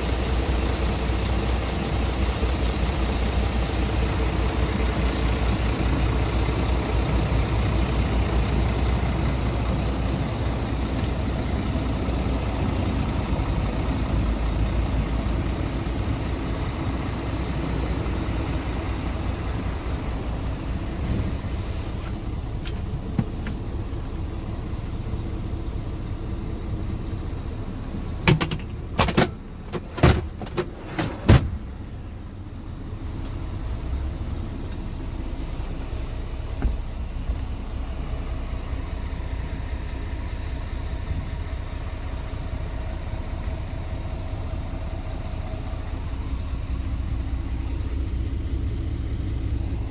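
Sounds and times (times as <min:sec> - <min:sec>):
truck diesel engine idling: 0:00.0 - 0:49.9.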